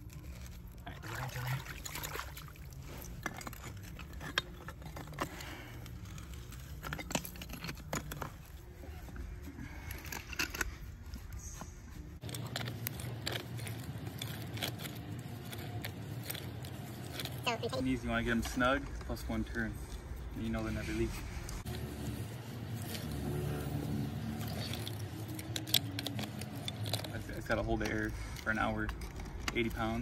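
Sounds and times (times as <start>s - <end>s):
water spraying and splashing: 0.9s - 2.7s.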